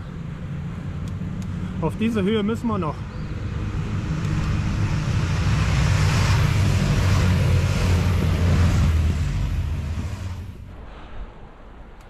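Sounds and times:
motorcycle engines: 0.0 - 10.7
wind and road noise: 0.0 - 12.0.

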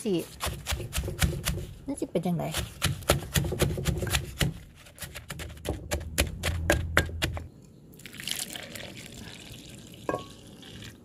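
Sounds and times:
wooden pestle pounding leaves: 0.0 - 7.5
water poured into mortar: 8.0 - 11.0.

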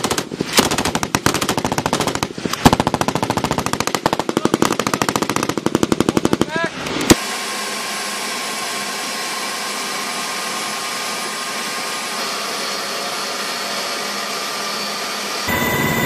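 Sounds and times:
helicopter turbine engines: 0.0 - 16.0
faint high whine: 12.1 - 16.0.

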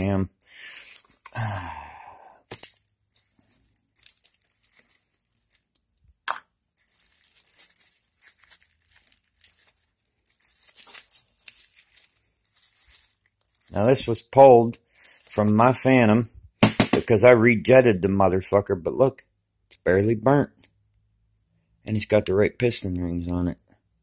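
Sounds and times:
plastic bag crinkling: 2.4 - 14.3, 14.9 - 15.6.

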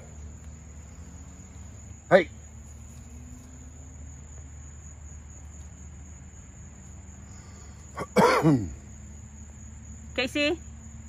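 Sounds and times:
crickets chirping: 0.0 - 11.0
person coughing: 8.0 - 8.7.

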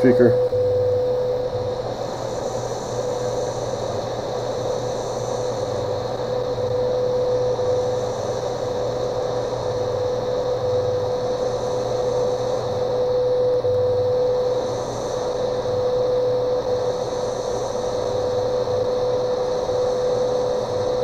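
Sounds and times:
radio hiss and static: 0.0 - 1.7, 4.9 - 21.0
steady radio tone: 0.0 - 1.7
low pulsing time code: 0.0 - 1.9, 8.7 - 14.6.

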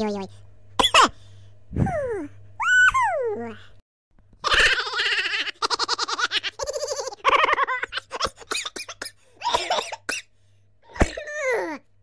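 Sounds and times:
person laughing: 4.4 - 8.8.

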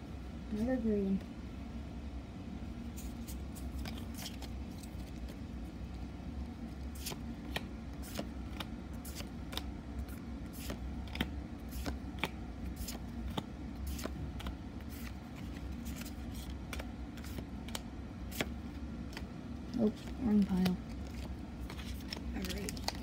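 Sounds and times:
low machine hum: 0.0 - 23.0
trading cards flipped with snaps: 10.6 - 14.1.

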